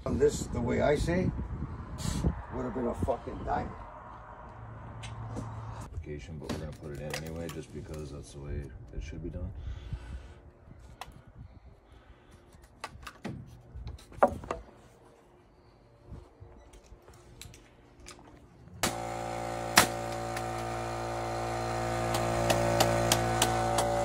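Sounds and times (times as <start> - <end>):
machine humming: 18.8 - 24.0
tape measure and lumber clicks: 22.0 - 24.0.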